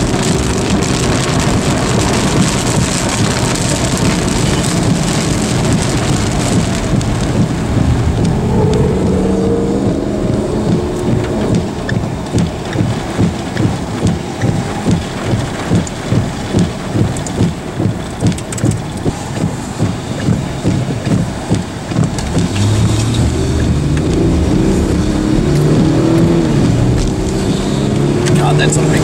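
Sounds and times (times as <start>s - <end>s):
rain on a vehicle: 0.0s - 29.0s
vehicle engine revving: 0.0s - 29.0s
regular low thump: 4.8s - 27.4s.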